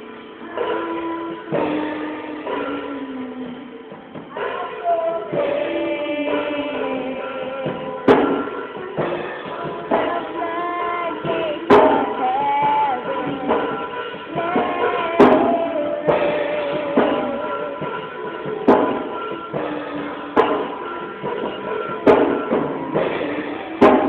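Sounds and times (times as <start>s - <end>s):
backing track with drums: 0.0s - 24.0s
child singing into a microphone: 4.3s - 18.7s.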